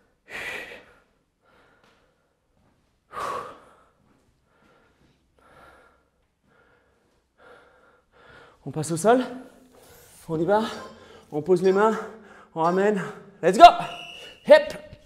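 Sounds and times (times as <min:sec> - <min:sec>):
man breathing hard: 0:00.0 - 0:08.6.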